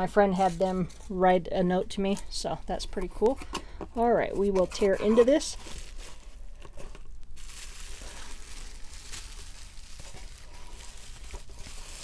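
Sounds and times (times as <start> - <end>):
bubble wrap crinkling: 4.3 - 12.0.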